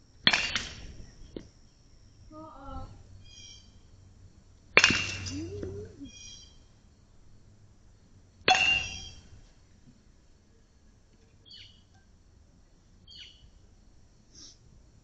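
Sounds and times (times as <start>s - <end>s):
bird chirps: 3.2s - 3.9s, 6.0s - 6.7s, 11.4s - 11.9s, 13.1s - 13.6s
metal bat pinging on ball: 4.8s - 5.8s, 8.5s - 9.2s.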